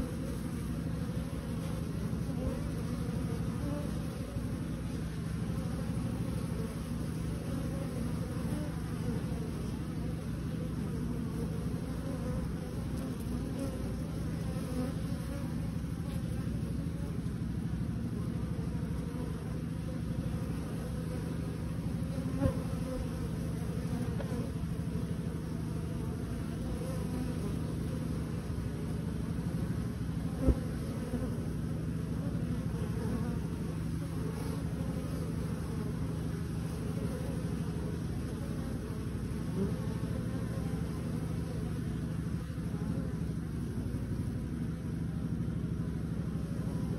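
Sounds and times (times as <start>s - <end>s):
honeybees buzzing: 0.0s - 46.9s.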